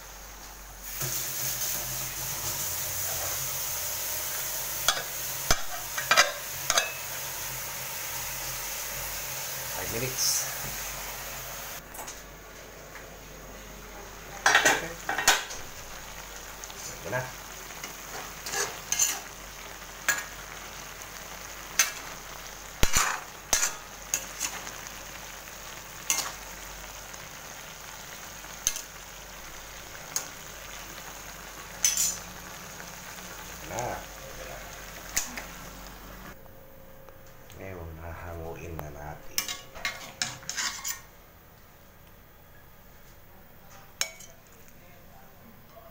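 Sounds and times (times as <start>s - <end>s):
food sizzling in a wok: 0.0s - 11.8s, 13.5s - 36.4s, 39.4s - 41.2s
metal ladle scraping a pan: 18.1s - 19.3s, 39.4s - 41.1s.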